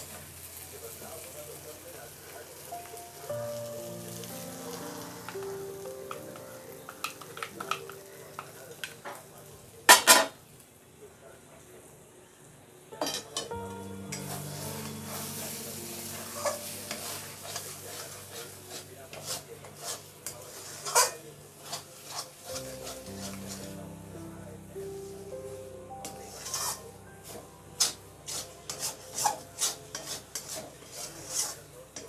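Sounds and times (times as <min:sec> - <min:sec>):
light sizzle: 0:00.0 - 0:11.7, 0:12.9 - 0:32.0
metal spatula scraping a metal pan: 0:16.4 - 0:23.0, 0:26.5 - 0:32.0.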